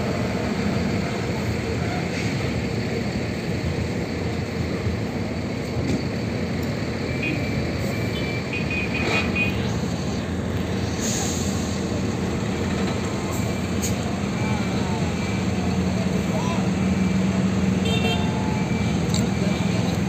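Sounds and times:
bus engine pulling away: 0.0s - 20.0s
traffic rumble: 0.0s - 20.0s
air hiss: 10.0s - 12.0s.

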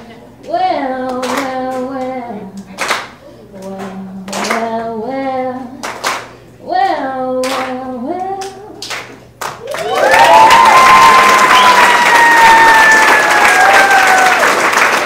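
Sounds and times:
hand claps: 1.1s - 2.0s, 2.6s - 4.6s, 5.8s - 6.4s, 7.4s - 7.8s, 8.4s - 15.0s
crowd applause: 9.6s - 15.0s.

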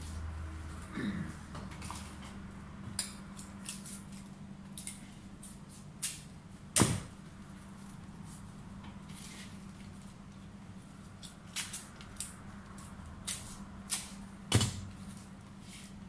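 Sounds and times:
palm leaves rustling and clicking: 11.0s - 14.2s.

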